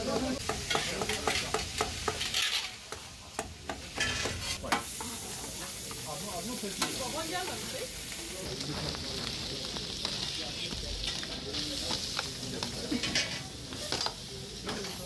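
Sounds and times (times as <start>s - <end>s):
food sizzling: 0.0s - 15.0s
utensils clattering: 0.7s - 2.8s, 12.9s - 15.0s.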